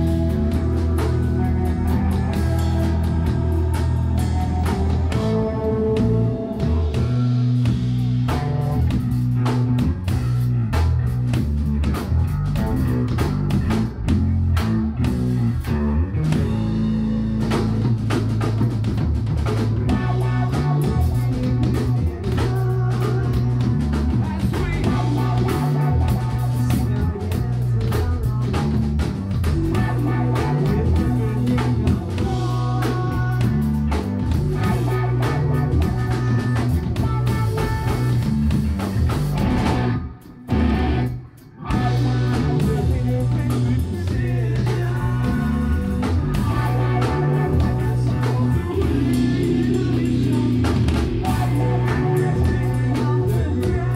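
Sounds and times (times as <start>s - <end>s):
drum kit beat: 0.0s - 53.9s
electric guitars: 0.0s - 53.9s.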